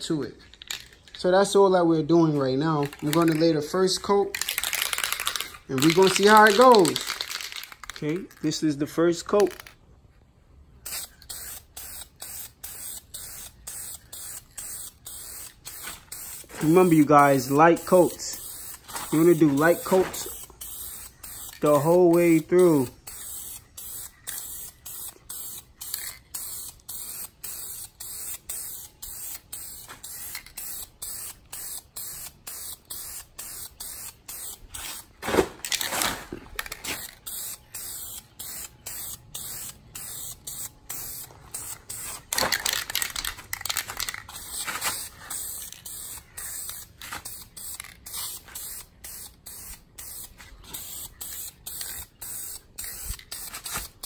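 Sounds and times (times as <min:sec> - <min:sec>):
dye spray hiss: 0:10.9 - 0:35.1, 0:36.9 - 0:43.2, 0:44.2 - 0:54.0.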